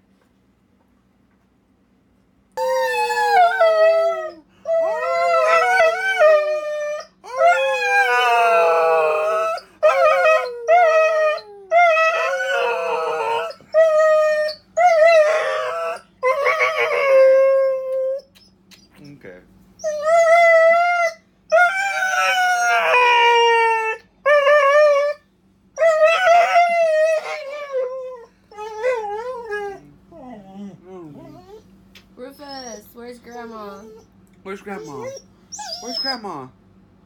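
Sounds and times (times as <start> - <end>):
small dog howling: 2.6 - 18.2, 19.9 - 25.2, 25.8 - 31.6.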